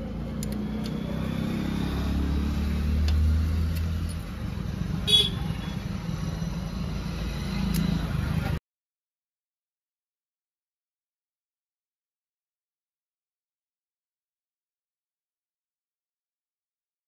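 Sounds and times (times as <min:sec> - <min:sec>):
vehicle engine humming: 0:00.0 - 0:08.6.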